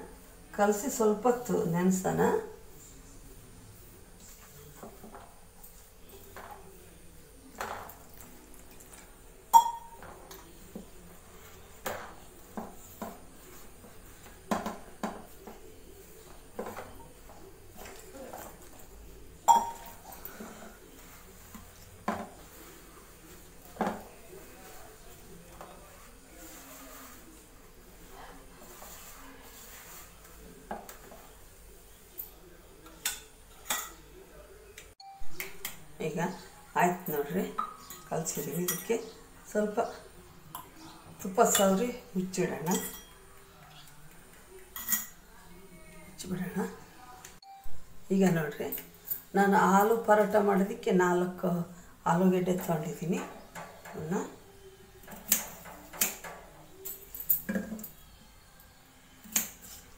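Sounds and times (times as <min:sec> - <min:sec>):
flour mixed by hand: 0:20.3 - 0:31.4.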